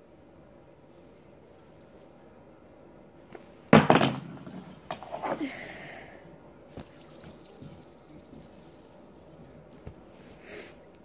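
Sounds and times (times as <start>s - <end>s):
loud thump with clatter: 3.7s - 4.5s.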